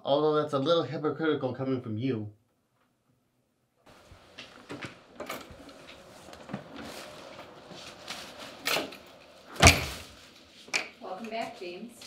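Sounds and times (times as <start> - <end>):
loud thump: 9.5 - 10.2.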